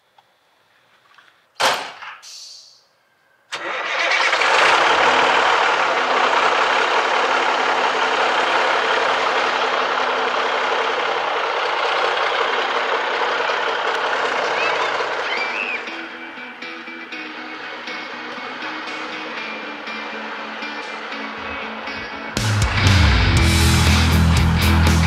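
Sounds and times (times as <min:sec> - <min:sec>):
short hiss: 0:02.2 - 0:02.9
diesel engine starting and running: 0:03.5 - 0:25.0.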